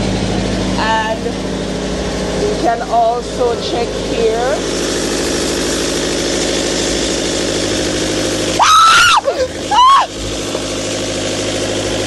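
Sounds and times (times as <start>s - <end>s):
generator running: 0.0s - 12.0s
woman screaming: 8.6s - 10.2s.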